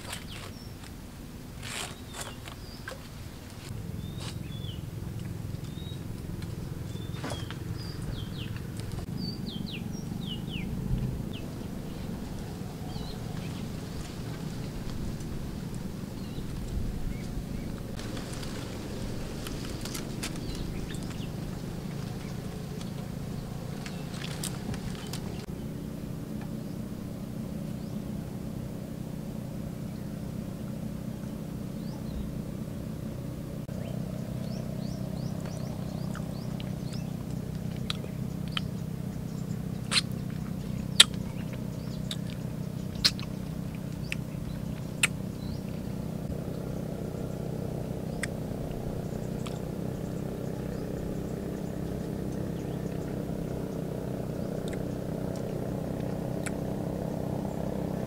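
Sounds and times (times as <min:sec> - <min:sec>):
low motor drone: 0:00.0 - 0:58.0.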